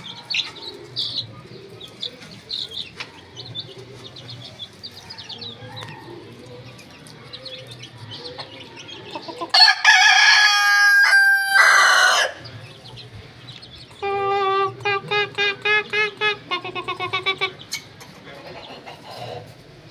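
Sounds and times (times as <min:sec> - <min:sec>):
rooster crowing: 0:09.5 - 0:12.4.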